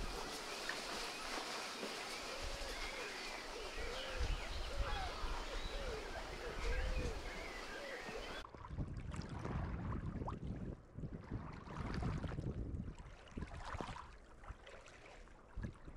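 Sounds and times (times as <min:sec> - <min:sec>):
wind rumbling on microphone: 0:00.0 - 0:01.4, 0:02.0 - 0:14.5, 0:15.5 - 0:15.9
waves lapping against rocks: 0:00.0 - 0:04.8
birds calling: 0:00.0 - 0:08.4.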